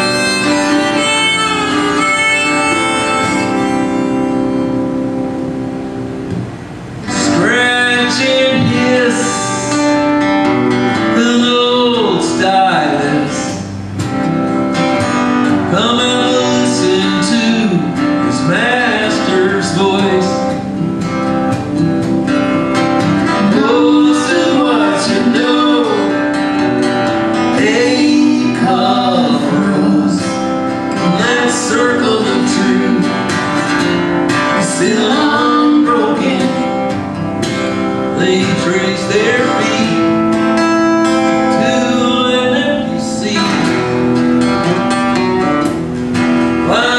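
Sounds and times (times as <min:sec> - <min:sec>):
strummed acoustic guitar: 0:00.0 - 0:46.9
man and woman singing: 0:07.1 - 0:09.8, 0:15.7 - 0:20.6, 0:23.3 - 0:26.2, 0:27.5 - 0:30.2, 0:30.9 - 0:33.2, 0:34.6 - 0:36.8, 0:38.2 - 0:40.2, 0:41.5 - 0:43.8.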